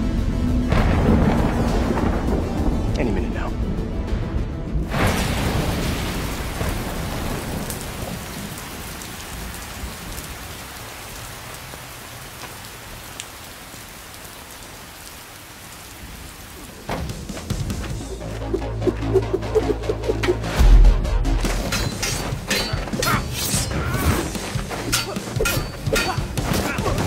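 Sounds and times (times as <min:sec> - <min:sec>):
heavy rain pouring: 0:00.6 - 0:03.8, 0:04.8 - 0:20.5, 0:21.3 - 0:27.0
low thunder rumble: 0:00.7 - 0:03.8.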